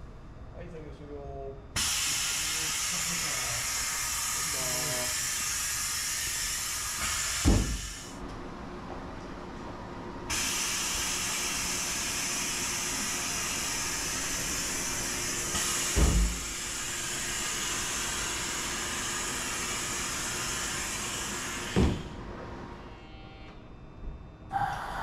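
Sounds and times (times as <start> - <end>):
compressed air hissing: 1.8 - 8.2, 10.3 - 22.2, 24.5 - 25.0.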